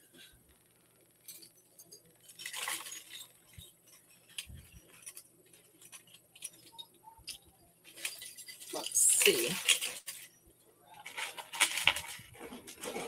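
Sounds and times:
metal earrings clinking: 1.2 - 10.3.

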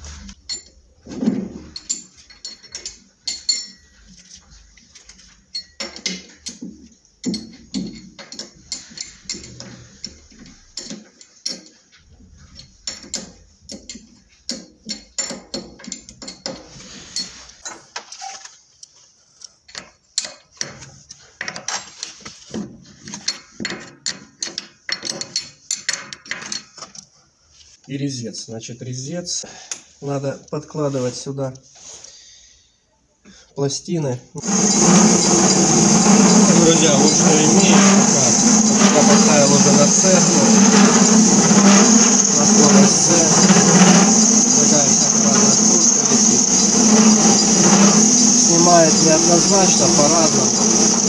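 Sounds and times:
metal clinks and clicks: 1.7 - 3.9.

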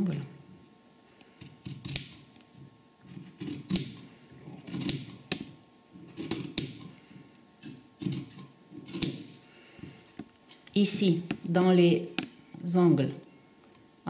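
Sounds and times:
shears snipping fabric: 1.4 - 2.3, 3.0 - 5.4, 6.0 - 7.0, 8.0 - 9.4.

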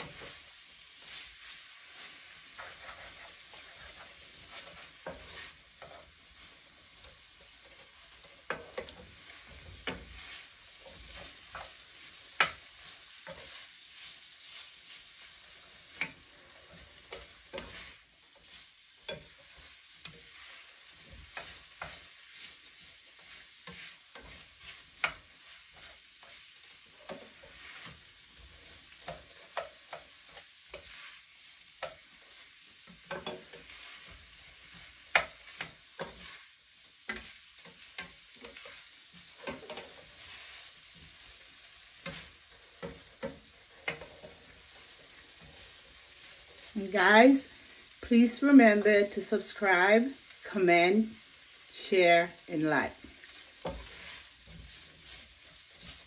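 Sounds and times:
utensil scraping a pan: 0.0 - 49.6, 51.7 - 56.0
noodles sizzling in a frying pan: 0.0 - 56.0.

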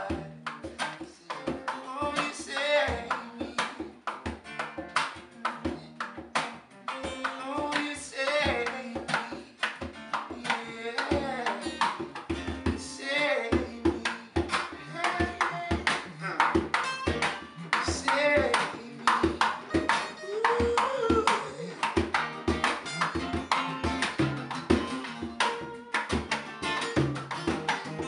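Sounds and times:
person singing: 0.0 - 4.0, 7.2 - 9.6, 10.2 - 11.9, 12.6 - 16.8, 17.6 - 22.1
acoustic guitar: 0.0 - 28.0
hand percussion beat: 0.0 - 28.0.

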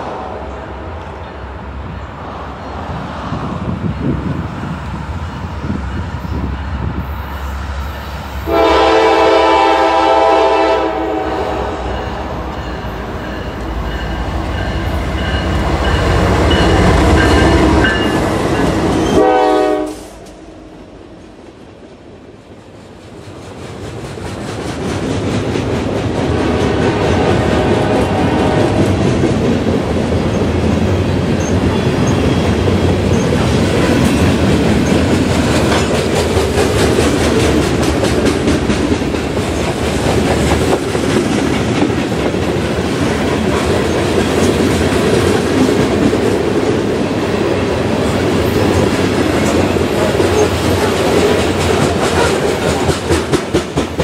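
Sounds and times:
train air horn blasts: 8.4 - 12.1, 17.4 - 20.3, 26.4 - 28.8
freight car wheels clacking on rails: 28.6 - 46.5, 48.5 - 54.0.

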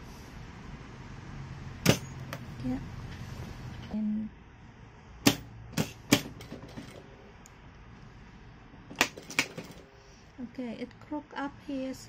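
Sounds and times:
sewing machine clacks: 5.3 - 7.0, 8.9 - 9.8.

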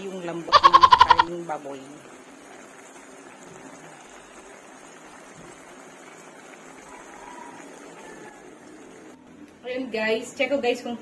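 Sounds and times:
liquid bubbling in a wok: 1.3 - 9.5.

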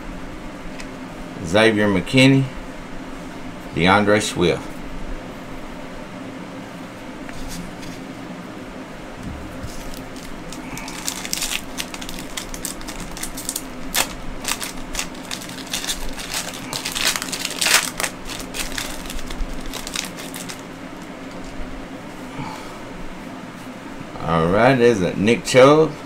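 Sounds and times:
foil wrapper crinkling: 9.7 - 21.6.

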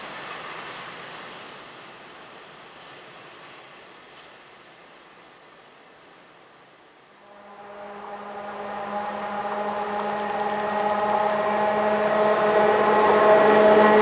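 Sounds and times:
electric train approaching: 7.2 - 14.0.

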